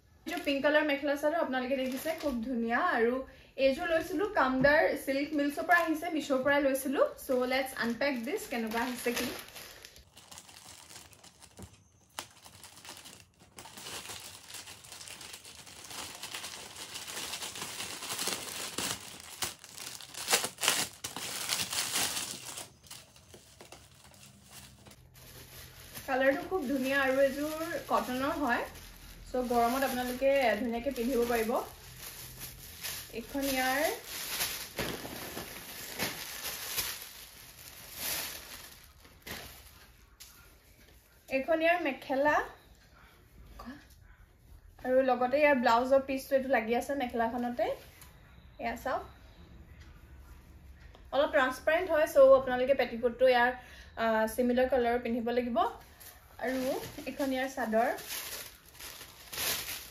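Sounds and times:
plastic packet crinkling: 7.8s - 39.9s, 55.9s - 59.9s.

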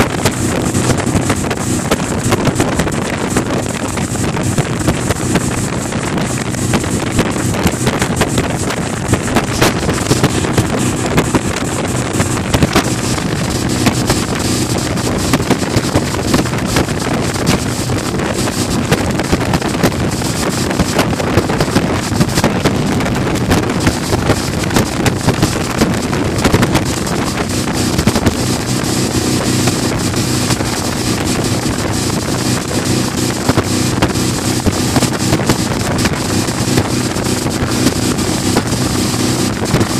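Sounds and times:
outboard motor running: 0.0s - 39.9s
rush of boat wake: 0.0s - 39.9s
wind buffeting microphone: 0.0s - 39.9s.

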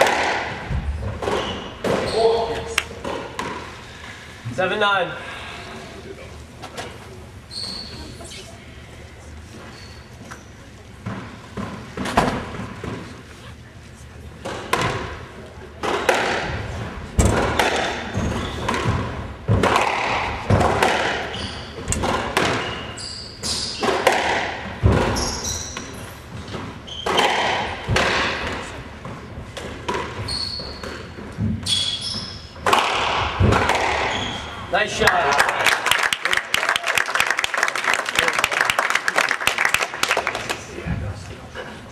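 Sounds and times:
squash ball hitting rackets and walls: 0.0s - 4.0s, 11.0s - 13.1s, 14.4s - 34.6s
sneakers squeaking on hardwood: 0.8s - 3.7s, 7.5s - 8.2s, 9.6s - 13.0s, 17.6s - 19.2s, 21.2s - 24.0s, 24.9s - 27.6s, 29.9s - 32.6s, 33.8s - 34.7s.

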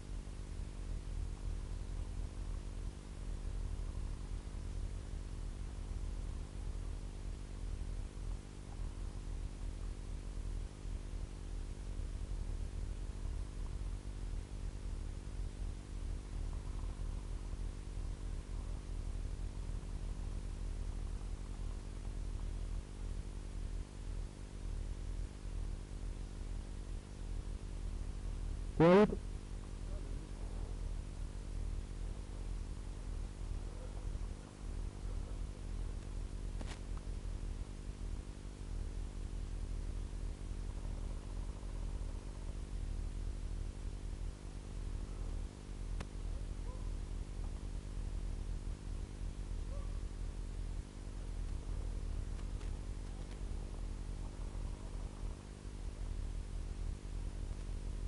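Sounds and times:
electrical hum and hiss: 0.0s - 58.0s
person shouting: 28.8s - 29.2s.

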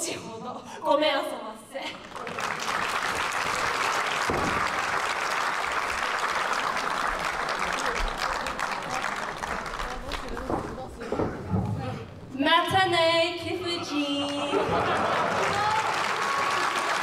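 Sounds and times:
audience applauding: 1.9s - 11.0s, 14.2s - 17.0s.

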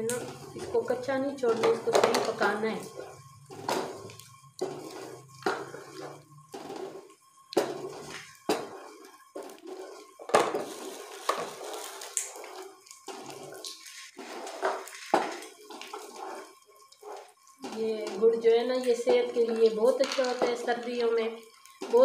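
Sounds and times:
wooden spoon scraping metal pan: 0.0s - 21.2s
hot oil sizzling: 0.0s - 22.0s
wet mixture sounds: 0.0s - 22.0s.

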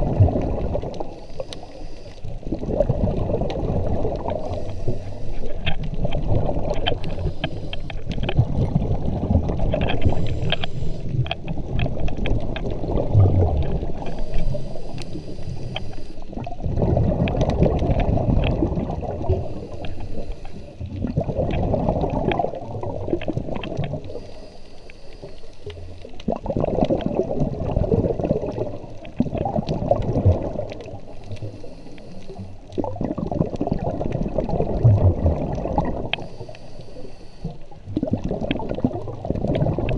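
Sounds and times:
underwater bubbles rushing and gurgling: 0.0s - 39.9s
faint clicks: 0.8s - 2.4s, 3.4s - 8.4s, 9.5s - 12.9s, 13.5s - 16.5s, 17.2s - 21.6s, 23.1s - 27.0s, 30.6s - 32.9s, 35.4s - 38.9s.

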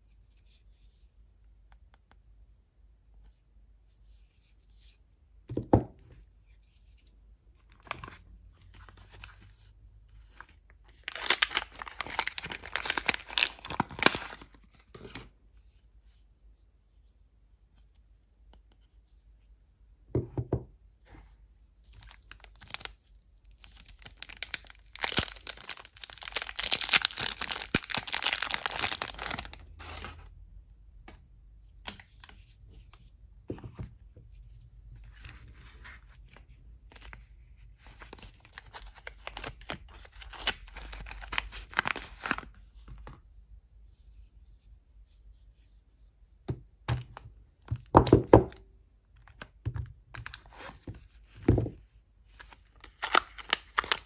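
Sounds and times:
paper wrapper tearing: 11.0s - 14.5s, 23.7s - 30.2s, 52.8s - 54.0s
plastic film crinkling: 11.0s - 14.6s, 23.6s - 30.1s, 52.8s - 54.0s.

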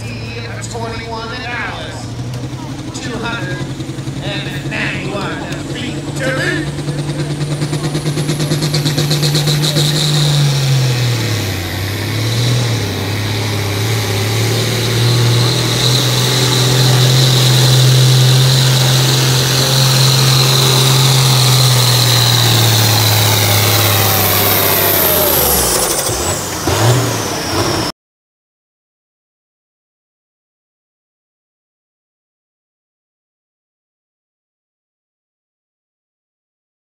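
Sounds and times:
diesel tractor engine at full throttle: 0.0s - 27.9s
high whine: 2.9s - 27.9s.

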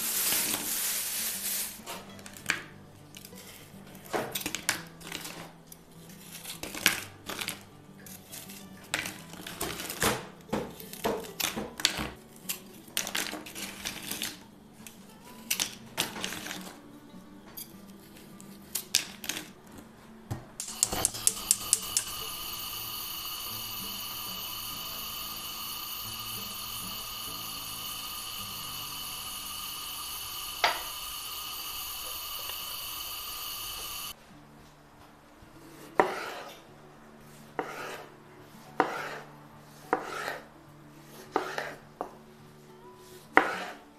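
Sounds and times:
pan hissing on stove: 0.0s - 1.9s, 20.6s - 34.2s
knife cutting and tapping in pan: 36.0s - 36.5s, 37.6s - 38.0s, 38.8s - 39.2s, 39.9s - 40.4s, 41.3s - 41.8s, 43.4s - 43.8s.

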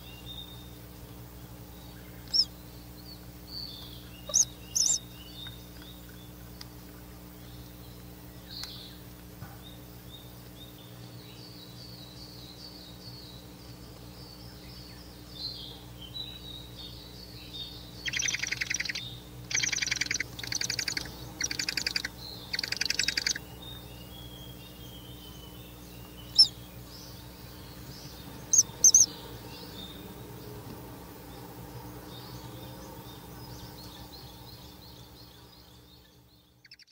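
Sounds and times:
owl chicks chirping: 0.0s - 9.2s, 10.0s - 36.9s
short sharp bird calls: 4.2s - 5.0s.

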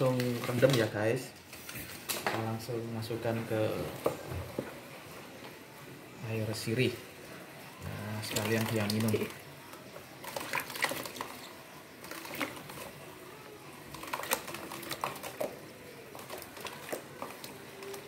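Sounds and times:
water splashing in a plastic tub: 7.9s - 18.0s.

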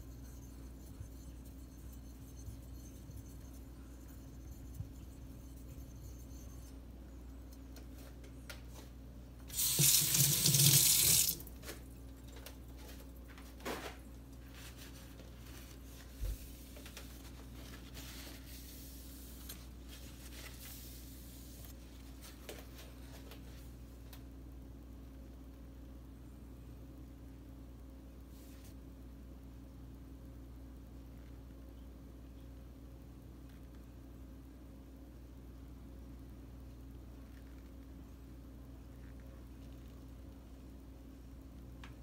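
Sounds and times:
low steady hum: 0.0s - 42.0s
sink tap water running: 9.5s - 11.5s.

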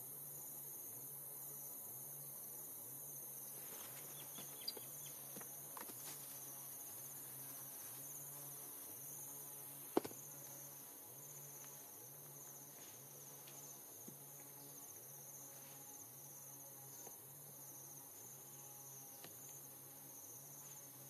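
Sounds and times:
insects chirping: 0.0s - 21.0s.

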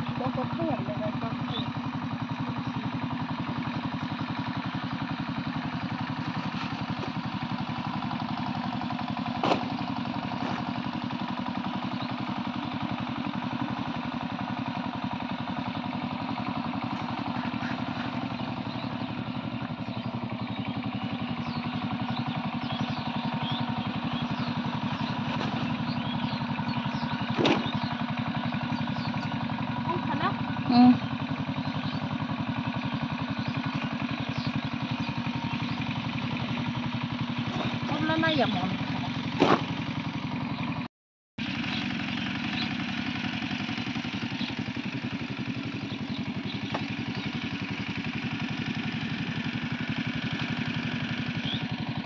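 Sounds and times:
small engine running: 0.0s - 52.0s.

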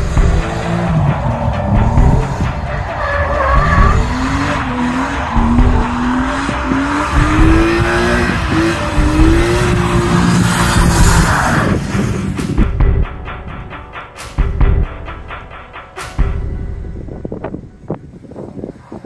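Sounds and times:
car engine revving hard: 0.0s - 12.3s.

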